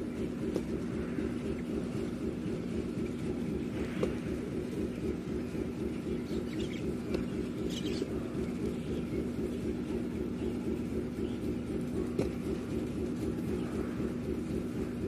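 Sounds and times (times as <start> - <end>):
engine running steadily: 0.0 - 15.0
bird chirping: 4.7 - 11.8.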